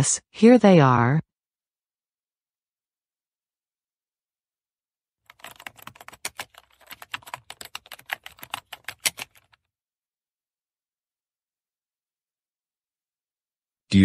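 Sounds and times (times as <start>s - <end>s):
computer keyboard typing: 5.3s - 9.6s.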